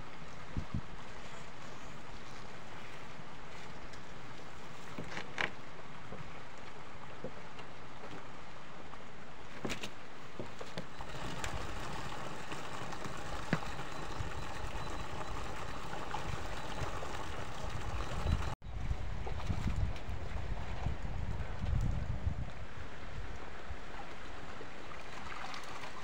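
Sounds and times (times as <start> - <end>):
wind on microphone: 0.0 - 2.2, 11.0 - 23.8
water rushing out of pond: 10.9 - 21.4, 22.6 - 26.0.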